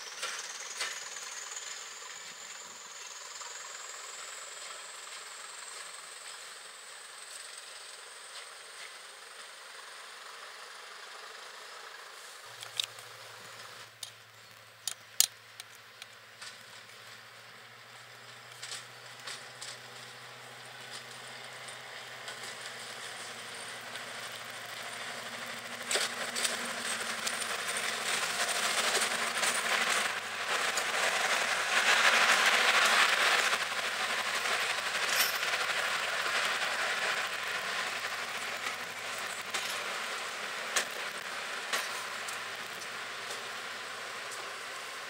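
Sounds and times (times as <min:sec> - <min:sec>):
wheels clicking over rail joints: 0:00.0 - 0:06.6, 0:12.1 - 0:45.0
diesel locomotive engine passing: 0:17.2 - 0:45.0.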